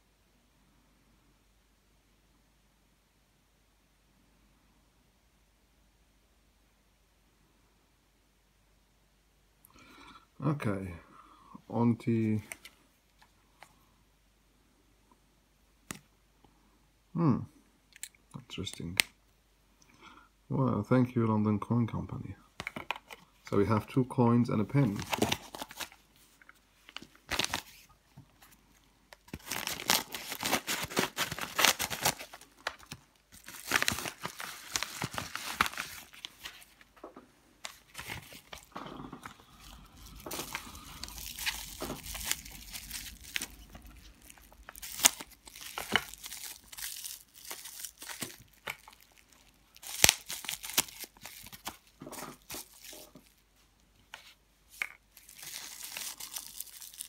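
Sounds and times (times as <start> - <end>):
paper and plastic rustling: 24.6 - 37.0, 37.6 - 53.4, 54.0 - 57.0.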